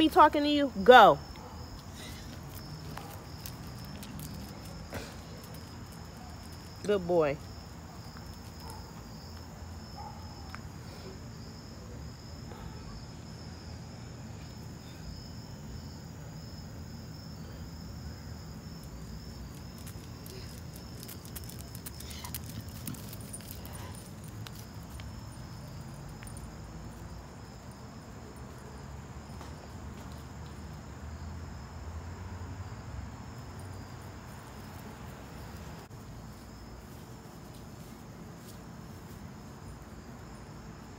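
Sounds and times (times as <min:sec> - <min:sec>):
crickets chirping: 0:00.0 - 0:40.9.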